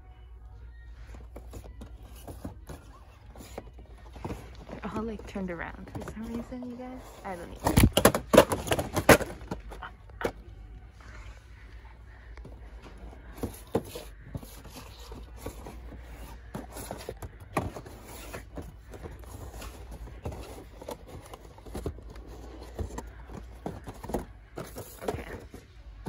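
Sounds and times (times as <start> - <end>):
cardboard boxes knocking and scraping: 1.3 - 9.8, 13.2 - 25.7.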